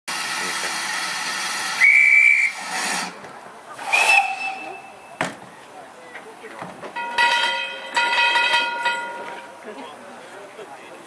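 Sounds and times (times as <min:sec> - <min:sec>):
locomotive steam hissing: 0:00.1 - 0:05.7
steam whistle blasts: 0:01.7 - 0:03.1, 0:03.8 - 0:05.2.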